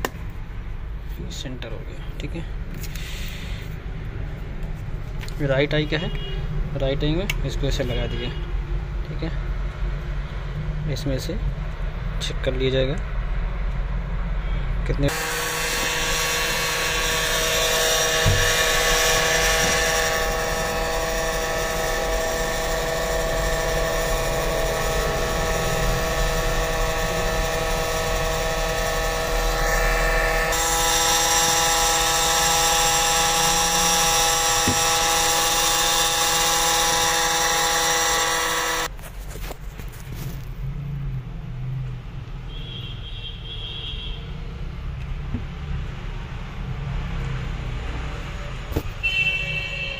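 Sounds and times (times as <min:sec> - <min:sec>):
machine motor whine: 0:15.1 - 0:38.9.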